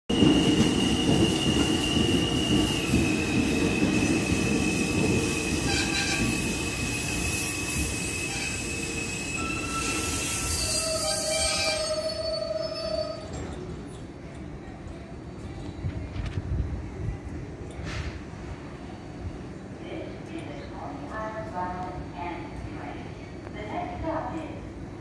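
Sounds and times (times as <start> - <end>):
subway train rumble: 0.1 - 25.0
high-pitched wheel squeal: 0.6 - 13.5.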